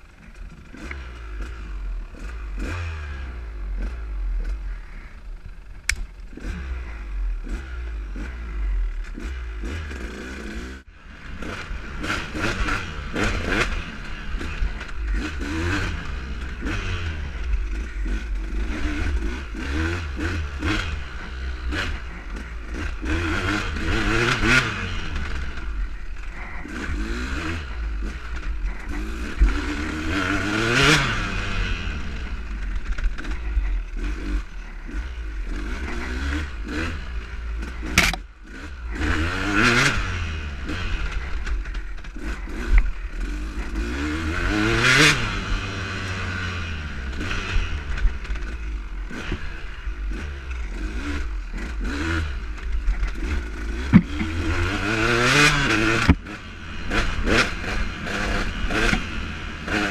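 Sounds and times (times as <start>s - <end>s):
dirt bike engine revving: 0.0s - 59.9s
clicks and knocks from rough ground: 52.6s - 54.4s.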